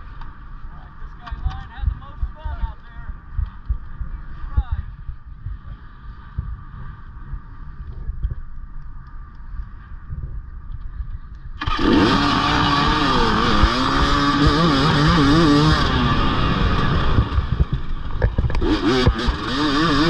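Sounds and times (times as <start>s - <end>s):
motorcycle engine revving: 11.6s - 20.0s.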